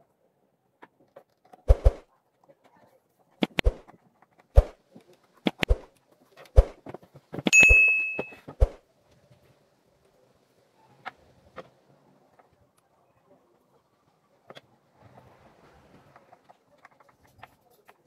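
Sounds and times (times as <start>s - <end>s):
bright bell ding: 7.6s - 8.4s.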